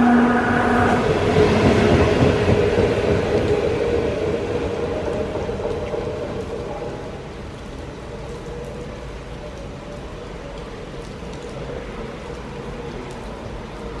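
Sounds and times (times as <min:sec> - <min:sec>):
electric train running hum: 0:00.0 - 0:07.0
light rain hiss: 0:00.0 - 0:14.0.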